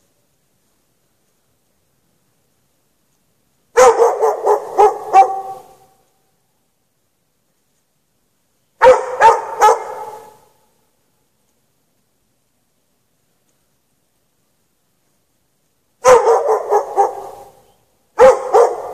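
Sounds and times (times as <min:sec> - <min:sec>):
dog barking: 0:03.8 - 0:05.8, 0:08.8 - 0:10.5, 0:16.0 - 0:18.9.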